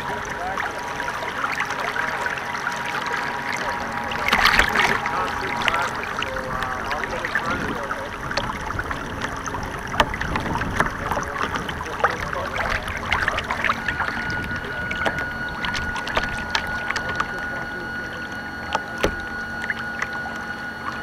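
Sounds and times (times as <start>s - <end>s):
steady high whine: 0.0s - 21.0s
water rushing along boat hull: 0.0s - 21.0s
small sharp water slaps: 3.5s - 17.5s.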